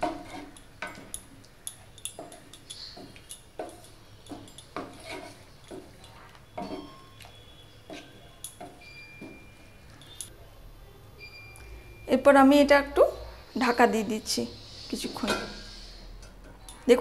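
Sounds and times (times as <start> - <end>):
wet squelches of stirring: 0.0 - 10.3.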